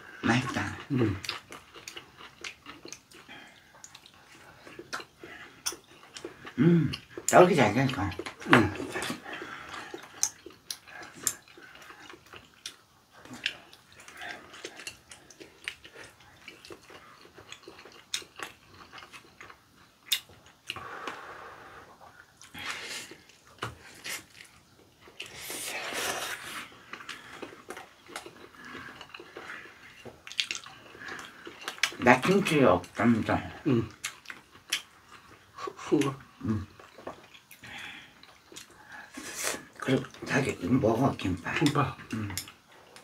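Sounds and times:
person chewing: 0.1 - 40.6, 41.3 - 43.0
slurping noodles: 25.2 - 27.2, 39.0 - 39.8.

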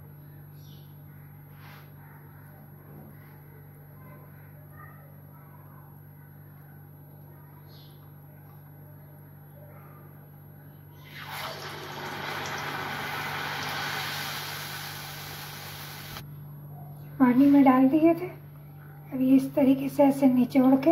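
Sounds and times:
faint steady hum: 0.0 - 20.9
food sizzling in hot oil: 11.2 - 16.2.

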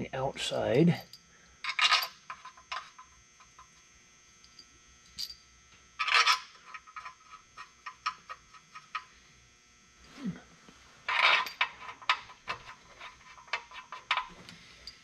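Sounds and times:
steel bolts clinking: 11.1 - 15.0.

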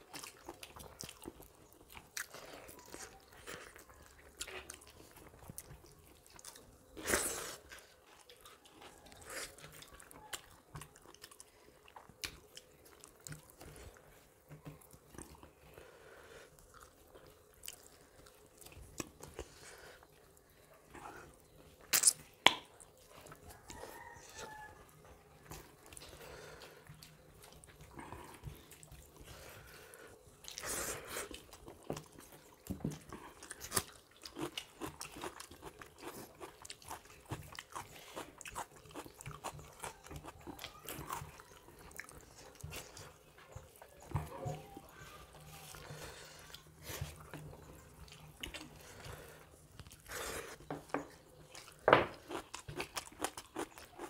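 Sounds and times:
chewing and crunching: 0.0 - 54.0.

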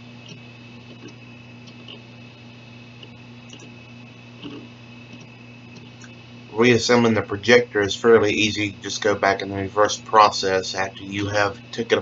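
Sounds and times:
low electrical hum: 0.0 - 12.0
faint irregular clicks: 0.2 - 2.0, 3.0 - 3.8, 4.4 - 6.2.

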